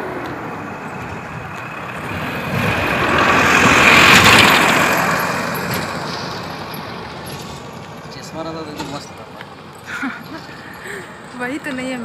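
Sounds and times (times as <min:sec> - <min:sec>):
vehicle driving past: 0:00.0 - 0:09.1.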